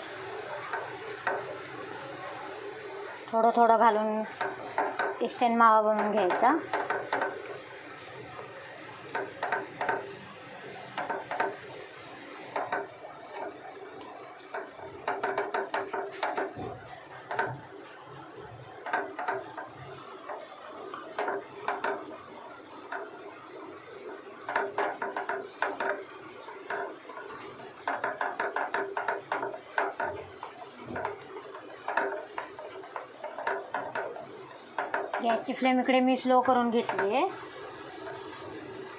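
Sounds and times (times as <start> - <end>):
spatula scraping frying pan: 18.4 - 35.6.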